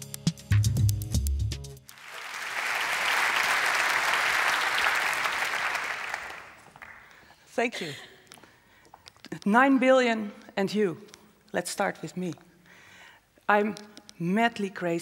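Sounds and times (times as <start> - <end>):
music with bass and beat: 0.0 - 1.9
large audience applauding: 1.9 - 7.2.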